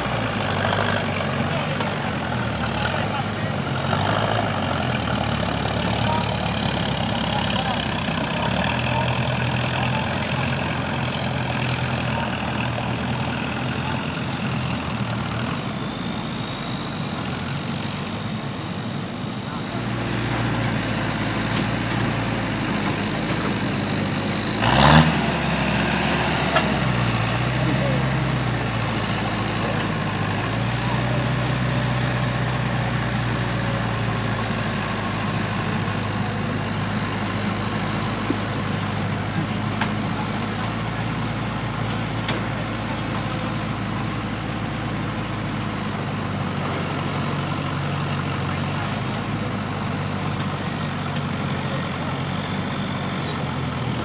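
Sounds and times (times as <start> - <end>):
truck engine at low revs: 0.0 - 54.0.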